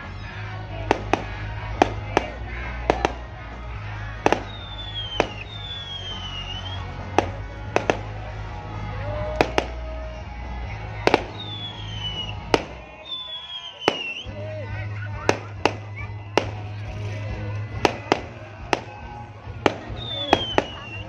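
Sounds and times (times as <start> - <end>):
music with low bass: 0.0 - 12.9, 14.3 - 21.0
fireworks bursting: 0.8 - 8.6, 9.2 - 10.0, 10.9 - 14.4, 15.1 - 21.0
fireworks whistling: 4.2 - 8.1, 11.1 - 14.4, 15.0 - 21.0.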